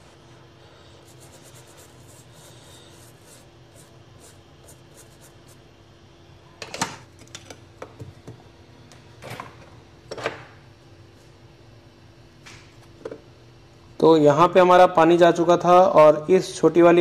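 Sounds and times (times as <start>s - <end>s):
brush scrubbing circuit board: 0.0s - 5.7s
faint steady hum: 0.0s - 17.0s.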